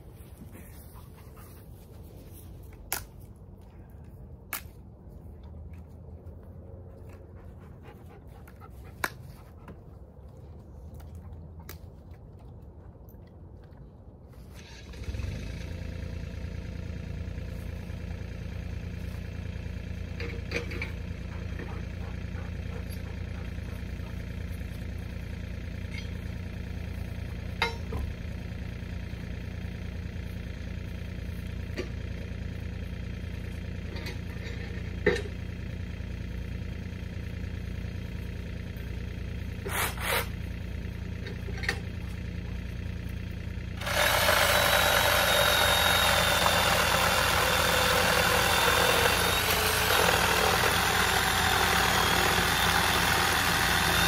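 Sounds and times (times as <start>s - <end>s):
excavator engine idling: 14.6s - 54.0s.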